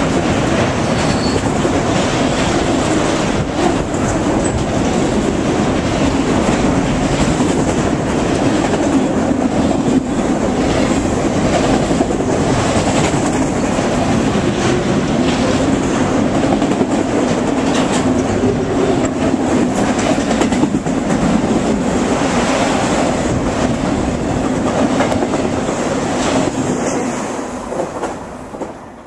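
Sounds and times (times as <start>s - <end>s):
freight train rumbling past: 0.0s - 29.0s
wheels clicking over rail joints: 0.9s - 21.9s.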